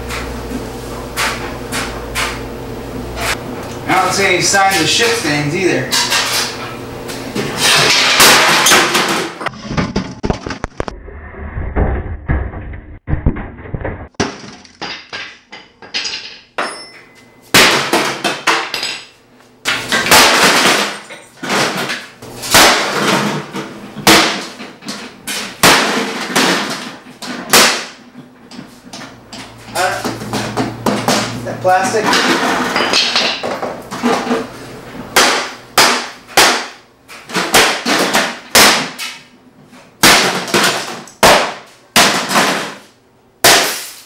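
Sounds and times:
loud clatter: 0:07.6 - 0:15.0
glass breaking: 0:43.4 - 0:44.0.

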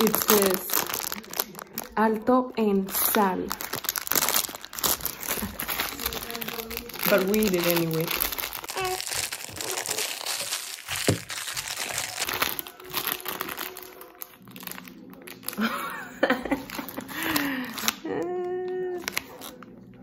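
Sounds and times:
plastic snack bag crinkling: 0:00.0 - 0:18.1, 0:18.7 - 0:20.0
person laughing: 0:15.6 - 0:18.8.

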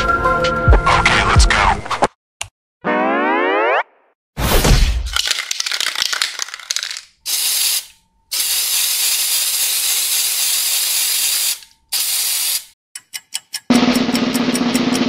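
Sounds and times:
spray can hissing: 0:05.2 - 0:12.7
spray can rattling: 0:05.2 - 0:12.7.

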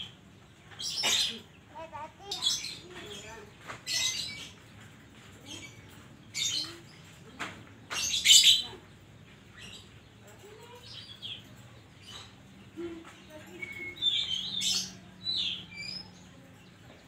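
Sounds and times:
songbird chattering and whistling: 0:13.5 - 0:16.2.

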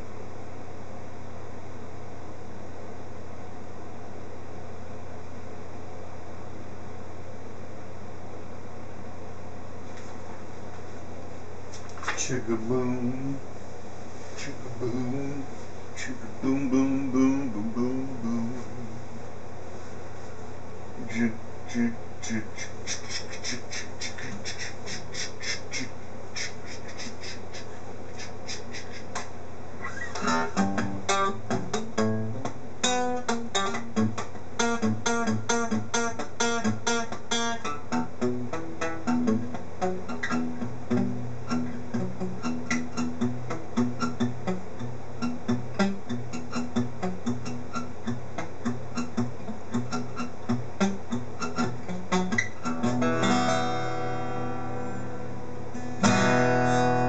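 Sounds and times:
guitar playing: 0:29.8 - 0:57.0.

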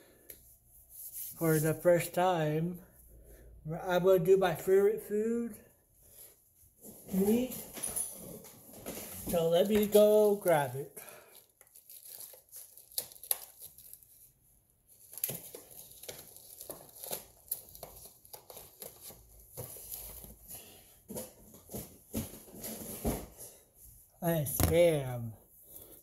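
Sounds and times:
plastic wrapping crinkling: 0:09.1 - 0:14.3, 0:15.0 - 0:20.4.

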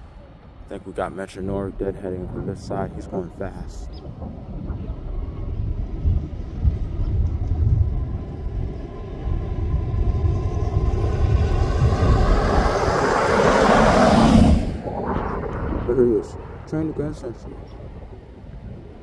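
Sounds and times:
diesel train rumbling: 0:00.0 - 0:14.8
wind on microphone: 0:00.0 - 0:19.0.

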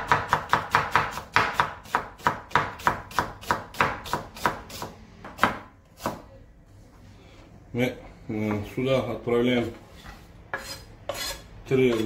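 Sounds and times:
knife chopping onion on board: 0:00.0 - 0:06.3.

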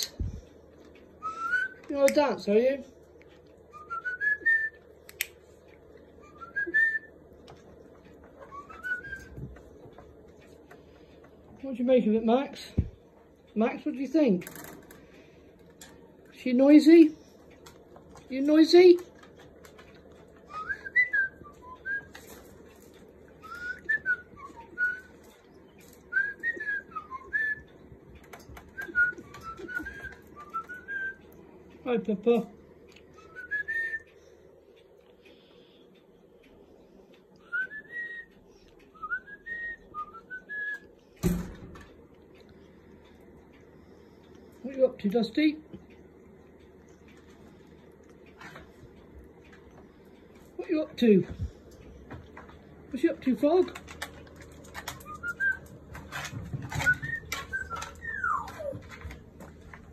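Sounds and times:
parrot whistling: 0:01.2 - 0:01.8, 0:08.4 - 0:09.3, 0:55.0 - 0:55.7, 0:56.8 - 0:58.8.

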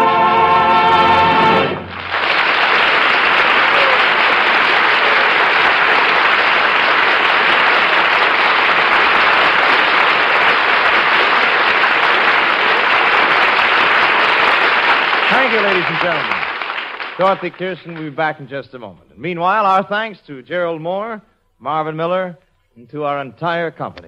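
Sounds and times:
orchestra playing: 0:00.0 - 0:02.2
audience applauding: 0:01.1 - 0:18.4.

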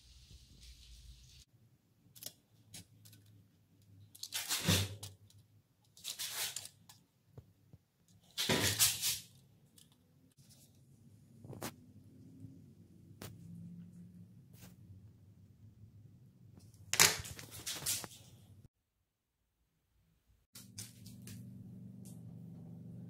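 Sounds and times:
rustling scrapes: 0:17.3 - 0:18.4.

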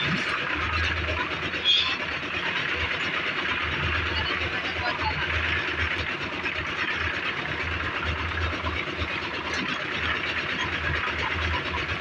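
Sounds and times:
concrete mixer churning: 0:00.0 - 0:12.0.

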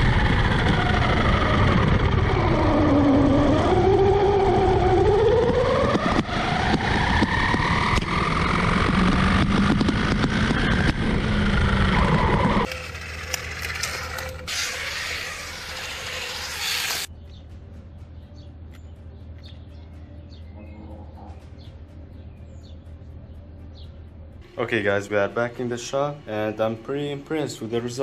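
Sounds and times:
electric motor whine: 0:00.0 - 0:17.1
tyre and road noise: 0:00.0 - 0:24.9
low hum: 0:00.0 - 0:28.0.

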